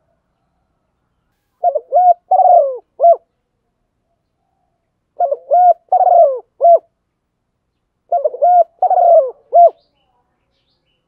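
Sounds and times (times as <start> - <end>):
dove cooing: 1.6 - 3.3, 5.2 - 6.9, 8.1 - 9.8.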